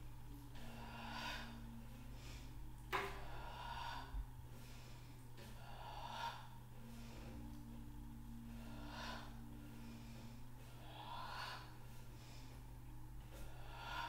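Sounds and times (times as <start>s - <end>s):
woman breathing deeply: 0.3s - 14.0s.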